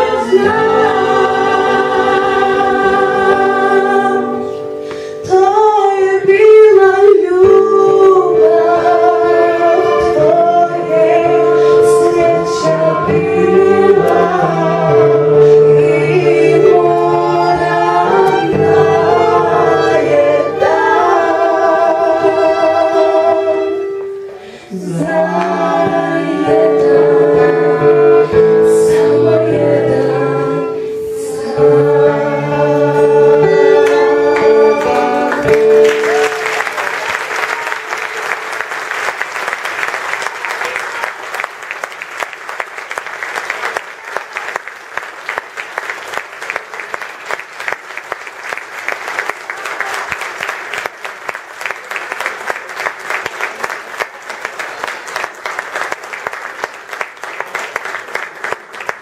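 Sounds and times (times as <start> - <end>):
women singing: 0.0 - 24.0, 24.7 - 35.8
audience applause: 33.9 - 59.0.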